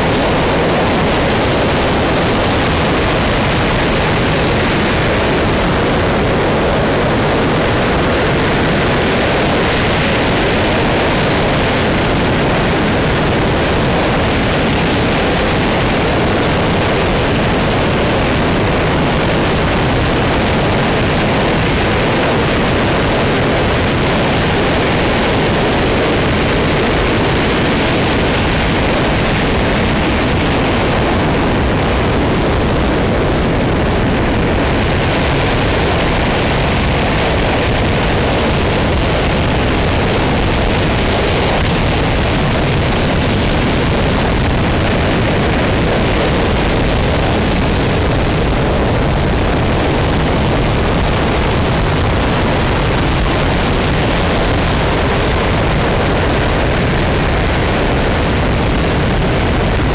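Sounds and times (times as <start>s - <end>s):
rocket engine roaring: 0.0s - 59.9s.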